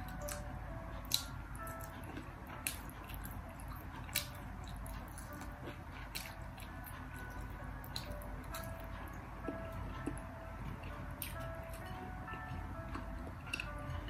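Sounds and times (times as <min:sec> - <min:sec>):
person chewing food: 0:00.0 - 0:14.0.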